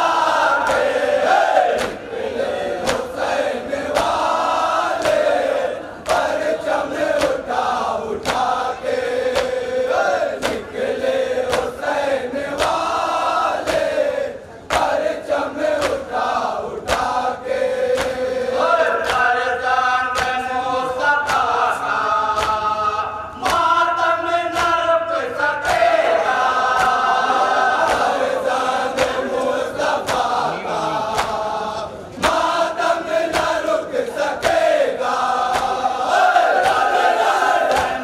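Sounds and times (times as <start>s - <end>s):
men chanting into microphone: 0.0s - 38.0s
hands slapping chest: 1.8s - 2.0s, 14.7s - 14.9s, 33.3s - 33.6s, 35.4s - 35.8s, 37.7s - 38.0s.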